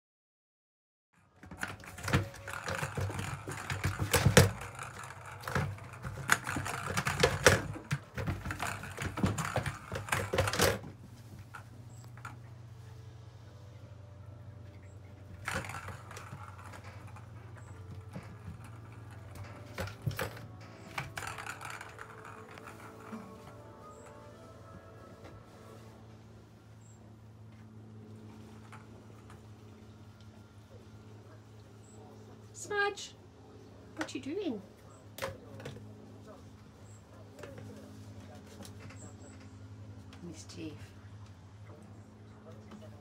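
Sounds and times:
plastic balls rattling in toy: 1.4 - 12.4, 15.3 - 24.2
faint low hum: 1.4 - 43.0.

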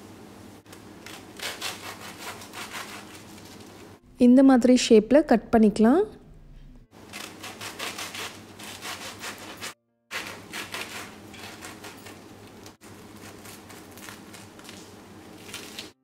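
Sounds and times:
knife sawing through toasted bread: 1.1 - 3.5, 7.1 - 14.3.

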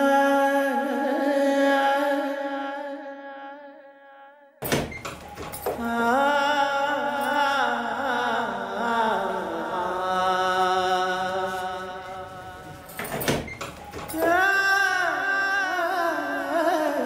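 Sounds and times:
person singing long notes: 5.8 - 13.0, 14.1 - 17.0.

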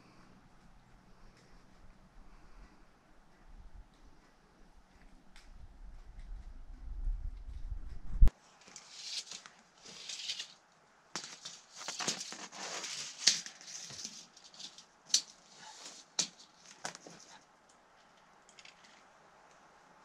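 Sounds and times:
roofing membrane rustling and scraping: 8.4 - 10.6, 11.2 - 17.4.

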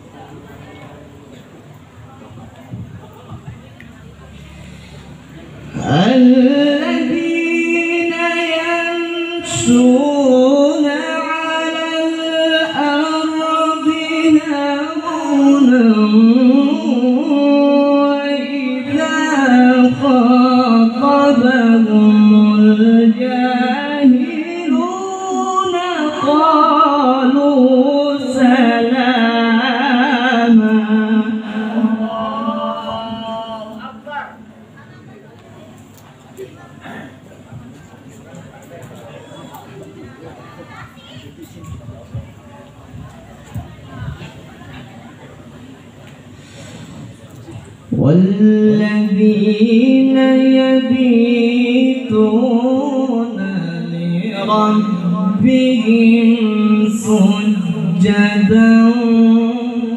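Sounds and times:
man reciting melodically: 5.1 - 34.6, 47.8 - 59.9.

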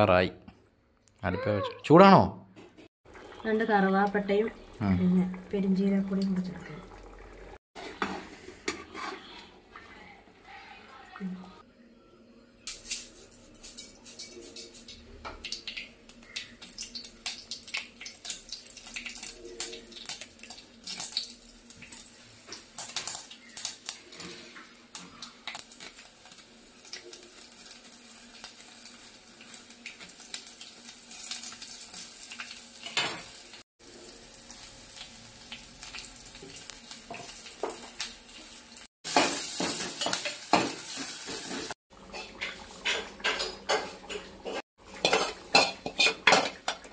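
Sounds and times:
oil sizzling in a pot: 3.1 - 11.7, 12.6 - 46.9
spoon and pot clatter: 39.1 - 46.9.

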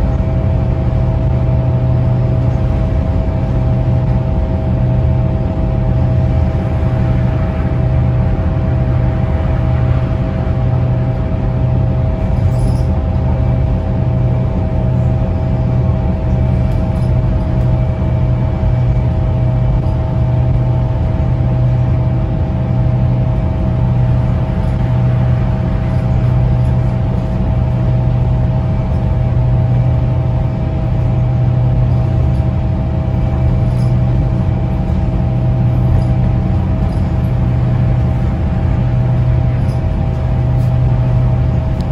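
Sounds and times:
bus diesel engine drone: 0.0 - 41.9
faint constant whine: 0.0 - 41.9
tyre and road noise: 0.0 - 41.9.

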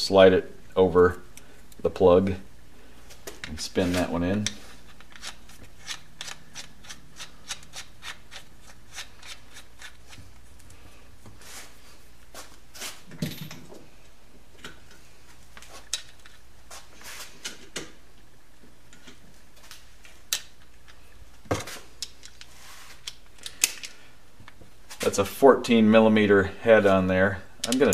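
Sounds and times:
metallic clicks of tools: 4.4 - 10.2, 27.6 - 27.9.

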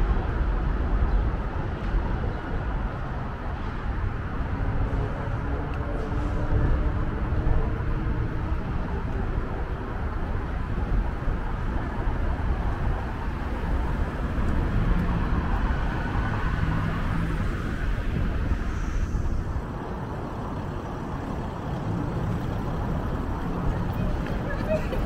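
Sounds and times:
road traffic rumble: 0.0 - 25.0
vehicle engine hum: 0.0 - 25.0.

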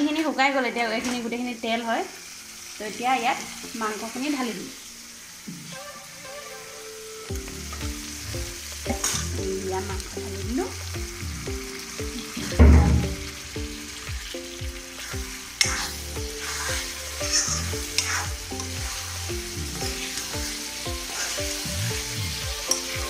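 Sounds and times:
chicken sizzling in hot oil: 0.0 - 23.0
spatula scraping a pan: 14.9 - 23.0.

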